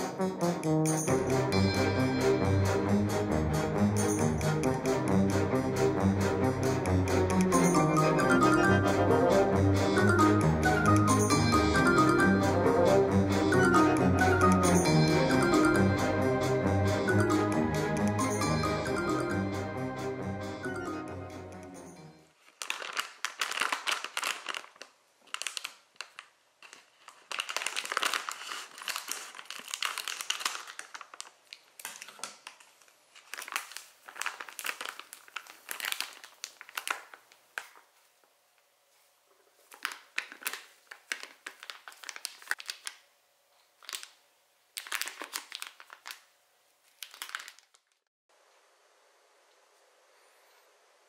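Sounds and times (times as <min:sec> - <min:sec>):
faint room noise: 0:21.8 - 0:51.0
plastic bag crinkling: 0:22.3 - 0:38.0, 0:39.5 - 0:43.0, 0:43.7 - 0:48.1.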